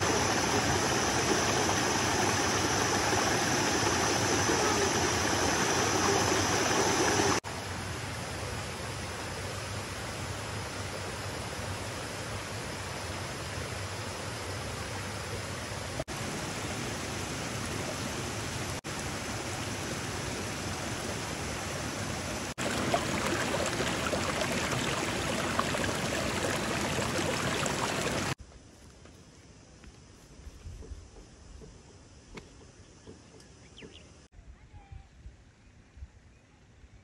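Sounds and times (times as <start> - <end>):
stream rushing over rocks: 0.0 - 7.4, 16.1 - 28.4
quiet outdoor background: 0.0 - 37.0.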